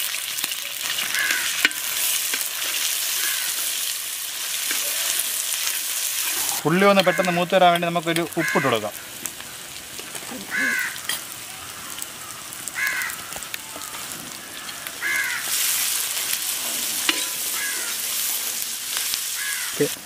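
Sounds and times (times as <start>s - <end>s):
onions sizzling in a pan: 0.0s - 20.0s
crow cawing: 1.0s - 2.0s, 3.1s - 3.8s, 6.4s - 7.5s, 8.3s - 9.7s, 10.3s - 16.0s, 17.4s - 18.3s, 19.3s - 20.0s.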